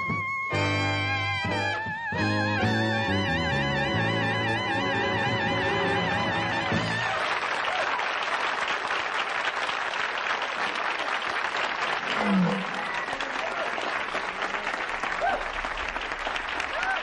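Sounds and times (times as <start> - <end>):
band playing: 0.0 - 7.4
audience applauding: 5.9 - 17.0.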